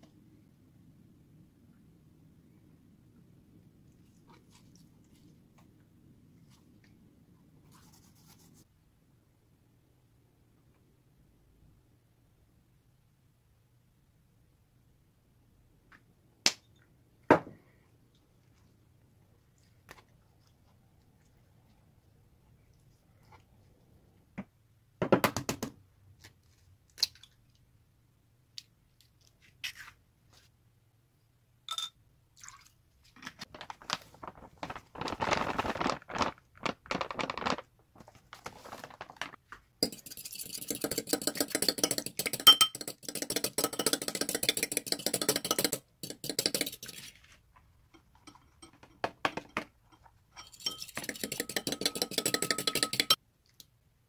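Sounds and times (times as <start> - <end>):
rustling: 33.1 - 39.8
fork clinking against bowl: 50.4 - 53.2.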